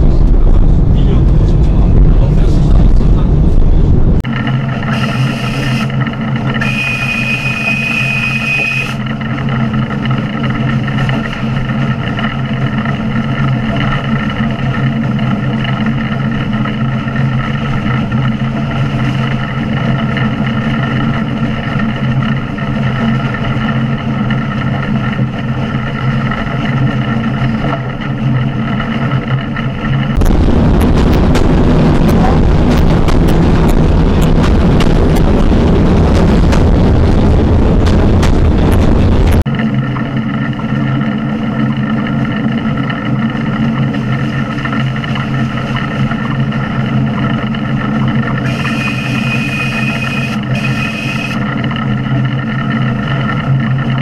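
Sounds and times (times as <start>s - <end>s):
steam locomotive hum: 0.0s - 39.4s, 40.2s - 52.2s
train rumble inside carriage: 0.0s - 54.0s
high train whistle: 4.8s - 6.0s, 6.6s - 9.1s, 48.4s - 51.4s.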